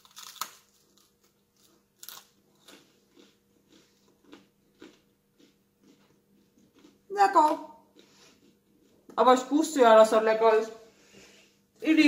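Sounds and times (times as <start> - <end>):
bread crust crunching while chewed: 0.0 - 7.1.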